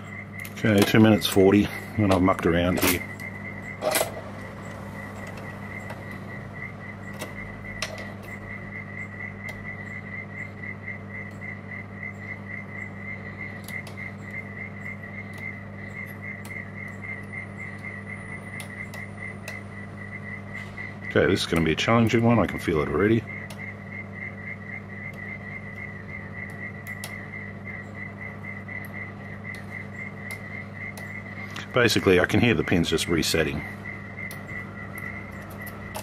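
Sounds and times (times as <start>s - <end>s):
steady low hum: 0.0s - 36.0s.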